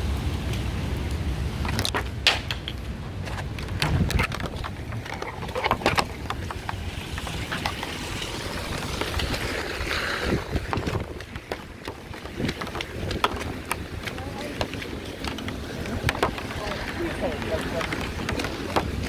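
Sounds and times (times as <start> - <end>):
low traffic rumble: 0.0 - 19.0
tyres hissing on wet road: 6.1 - 19.0.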